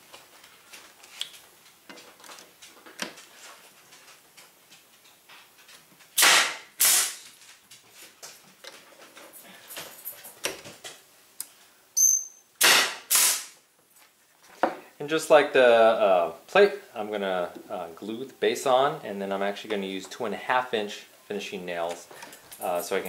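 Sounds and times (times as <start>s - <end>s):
nail gun firing: 6.2s - 7.2s, 12.6s - 13.6s.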